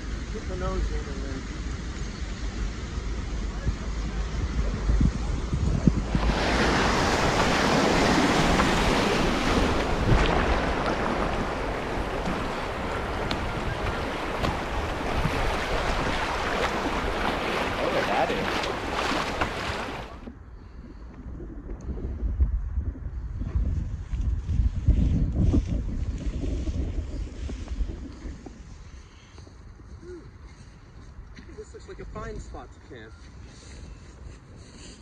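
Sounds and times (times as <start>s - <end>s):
wind buffeting microphone: 1.8s - 30.0s
fast-flowing floodwater rushing: 6.1s - 20.3s.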